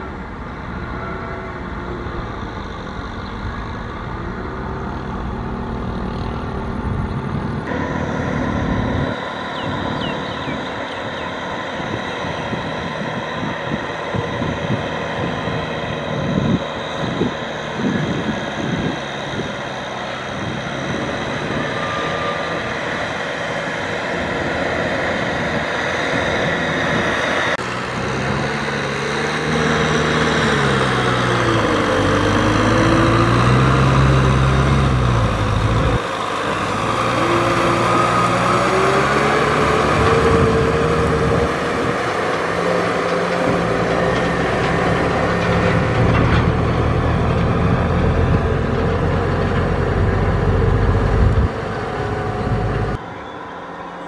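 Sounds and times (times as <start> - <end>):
tractor diesel engine under load: 0.0 - 54.0.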